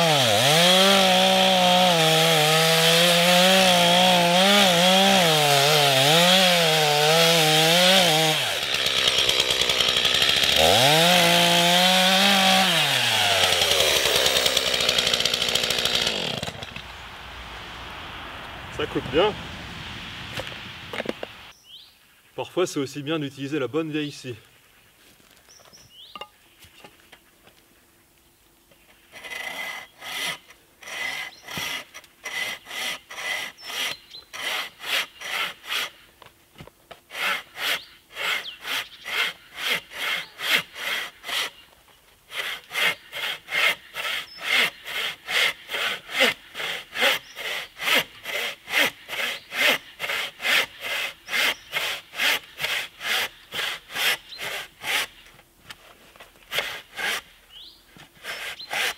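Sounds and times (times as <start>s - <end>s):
hand saw cutting a log: 0.0s - 16.8s, 29.0s - 36.0s, 36.9s - 41.6s, 42.3s - 57.4s, 58.0s - 58.9s.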